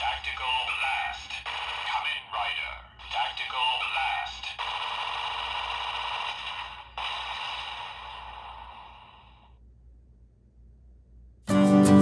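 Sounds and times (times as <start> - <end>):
toy gun electronic blast effect: 0.8 - 2.3, 3.0 - 9.5.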